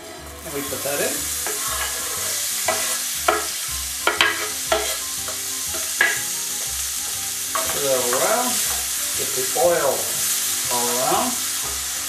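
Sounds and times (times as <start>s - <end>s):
onion sizzling in frying pan: 0.0s - 12.0s
knife scraping cutting board: 1.4s - 3.4s.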